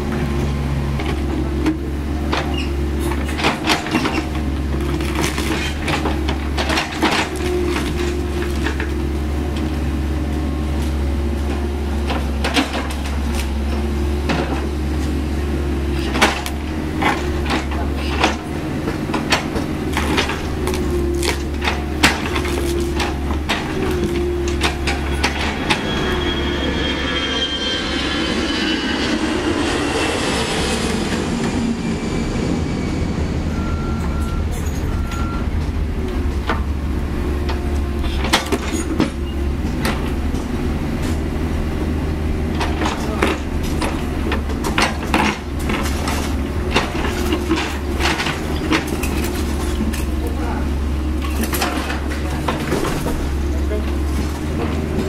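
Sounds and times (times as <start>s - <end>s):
excavator diesel engine running: 0.0s - 55.0s
metal scraping squeal on rock: 20.8s - 33.3s.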